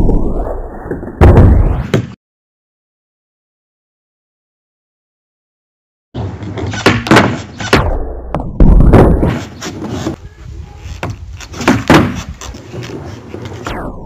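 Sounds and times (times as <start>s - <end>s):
skateboard clacks and thuds: 6.2s - 7.8s, 10.9s - 13.7s
skateboard wheels rumbling on planks: 8.6s - 13.7s.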